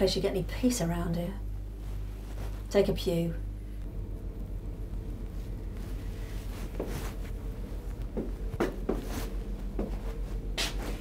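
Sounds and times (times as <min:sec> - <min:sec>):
low room hum: 0:00.0 - 0:11.0
soft rustles and knocks: 0:05.2 - 0:11.0.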